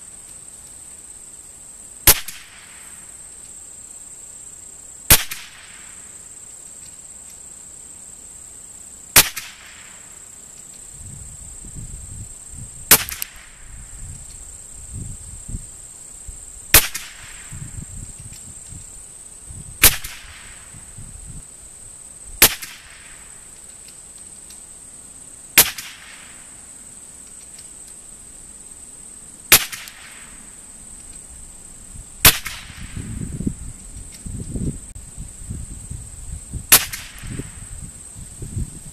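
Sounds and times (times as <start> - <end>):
rifle shots with echo: 5.1 - 5.8, 29.5 - 30.2, 32.2 - 33.0.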